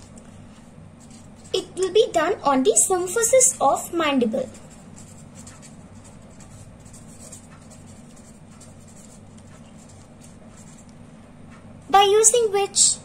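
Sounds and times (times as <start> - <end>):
low steady hum: 0.0 - 13.0
felt-tip pen writing on paper: 4.5 - 10.9.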